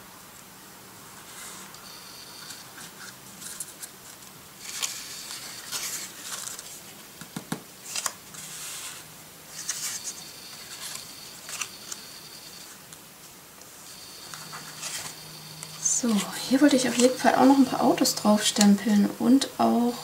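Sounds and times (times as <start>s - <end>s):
cardstock rustling and scraping: 2.4s - 6.9s, 7.8s - 12.6s, 14.2s - 17.7s.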